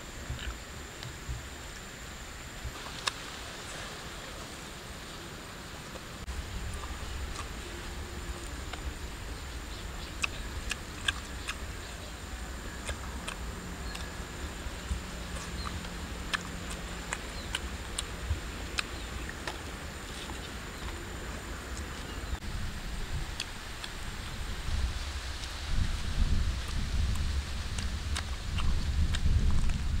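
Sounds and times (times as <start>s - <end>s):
low steady rumble: 0.0s - 30.0s
wet chewing and lip-smacking: 6.7s - 21.0s, 23.1s - 24.4s, 26.6s - 29.9s.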